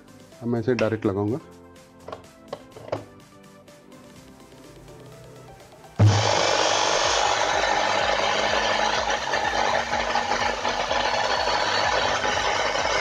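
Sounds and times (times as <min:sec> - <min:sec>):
washing machine motor rattling: 0:06.1 - 0:13.0.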